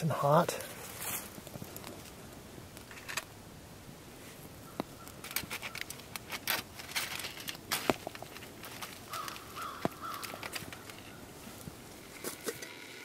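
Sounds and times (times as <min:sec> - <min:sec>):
aluminium foil crinkling: 0:05.0 - 0:11.2.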